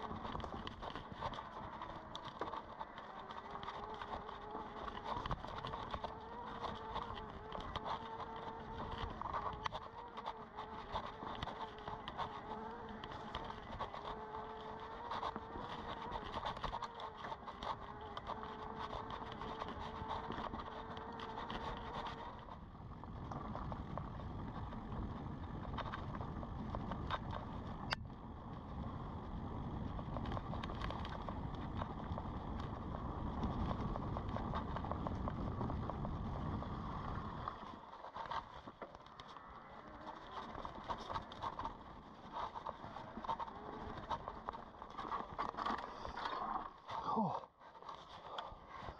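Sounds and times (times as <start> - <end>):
electric bike motor whining: 0.0 - 37.8, 39.1 - 46.2
bike rattles and clicks: 0.0 - 48.9
tyres rumbling on dirt trail: 0.0 - 48.9
wind rumble: 18.9 - 38.3.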